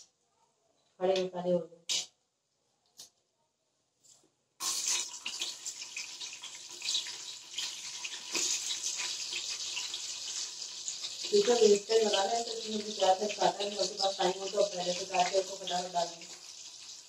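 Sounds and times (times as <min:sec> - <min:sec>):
hot oil sizzling and crackling: 0:04.6 - 0:17.0.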